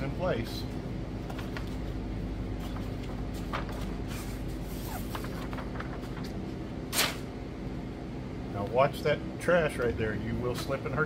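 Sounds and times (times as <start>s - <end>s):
air conditioning hum: 0.0s - 11.0s
paper backing rustling: 2.6s - 6.6s.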